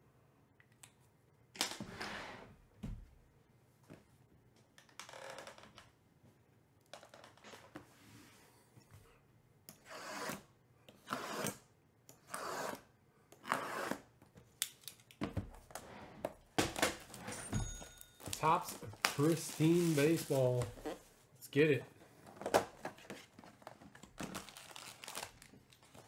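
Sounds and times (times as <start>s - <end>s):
blade slitting plastic wrap: 18.7s - 20.7s.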